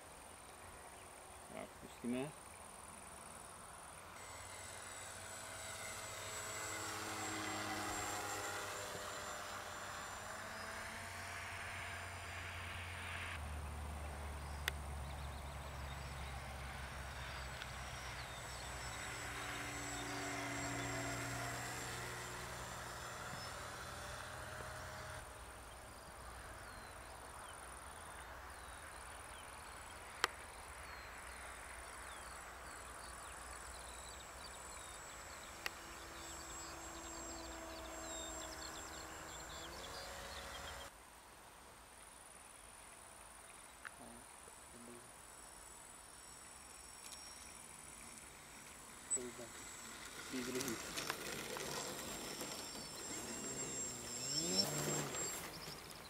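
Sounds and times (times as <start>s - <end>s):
model plane motor droning: 4.0s - 13.4s, 14.0s - 26.9s, 31.0s - 40.9s, 46.0s - 56.0s.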